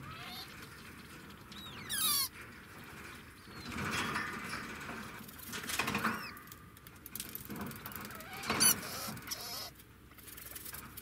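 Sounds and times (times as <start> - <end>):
rodent squeaky chirps: 1.6 - 2.3, 8.6 - 9.7.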